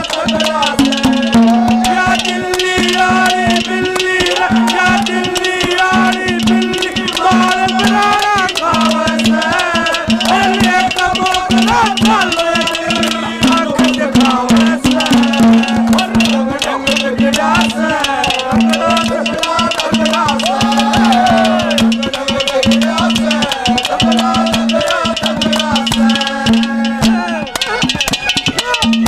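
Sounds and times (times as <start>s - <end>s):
fast hand percussion: 0.0s - 29.0s.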